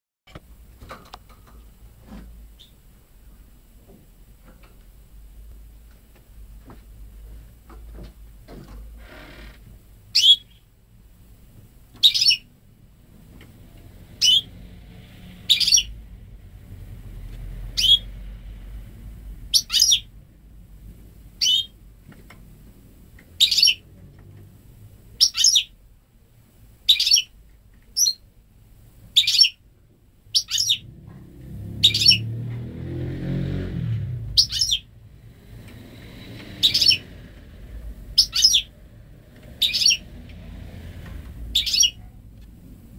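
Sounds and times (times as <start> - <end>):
bird sharp high calls: 10.1 - 10.6, 12.0 - 12.5, 14.2 - 14.5, 15.5 - 16.0, 17.7 - 18.1, 19.5 - 20.1, 21.4 - 21.8, 23.4 - 23.8, 25.2 - 25.8, 26.9 - 27.3, 28.0 - 28.2, 29.2 - 29.6, 30.3 - 30.9, 31.8 - 32.3, 34.3 - 34.9, 36.5 - 37.2, 38.1 - 38.7, 39.6 - 40.1, 41.5 - 42.0
low muffled rumble: 34.1 - 42.9.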